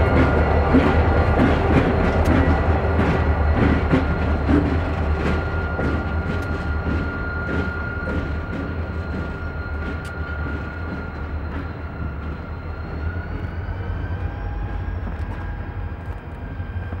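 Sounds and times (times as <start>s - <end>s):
diesel locomotive engines rumbling: 0.0s - 17.0s.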